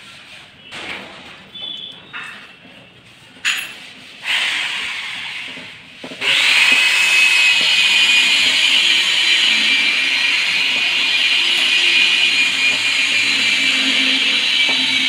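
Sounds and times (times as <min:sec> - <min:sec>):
electric drill driving a screw: 0:06.2 - 0:15.0.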